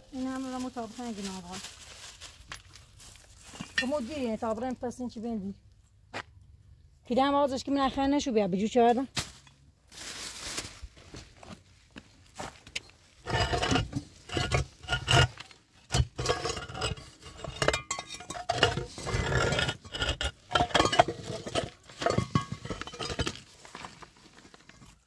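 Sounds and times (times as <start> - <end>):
bricks knocking together: 13.3 - 23.4.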